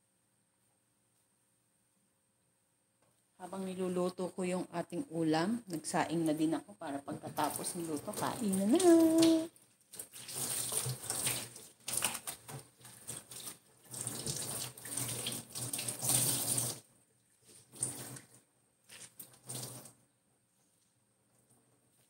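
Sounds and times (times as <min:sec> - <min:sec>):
tap water running and splashing: 0:07.4 - 0:16.9, 0:17.6 - 0:20.0.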